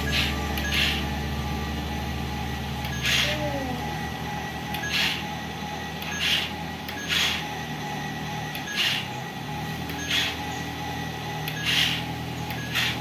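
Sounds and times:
toy engine hum: 0:00.0 - 0:01.2, 0:02.8 - 0:04.1, 0:04.7 - 0:05.3, 0:05.9 - 0:13.0.

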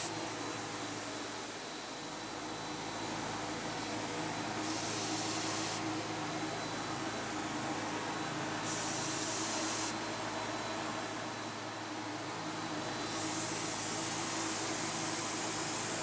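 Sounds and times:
spray gun hissing: 0:04.6 - 0:05.9, 0:08.6 - 0:10.0, 0:13.0 - 0:16.0.

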